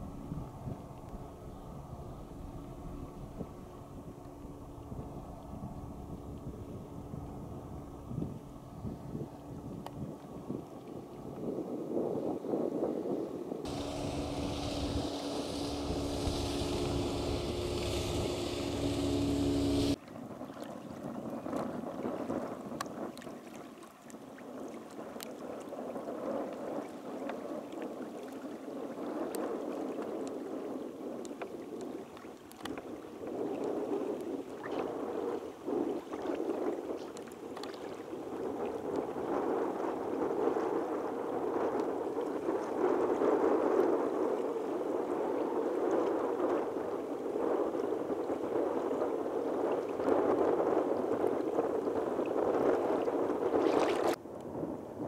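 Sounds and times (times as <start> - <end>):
wind on microphone: 0.0 - 55.0
droning held tones with hiss: 13.7 - 20.0
small splashes: 13.7 - 21.0, 35.9 - 39.1, 53.0 - 54.2
waves lapping against kayak hull: 13.7 - 55.0.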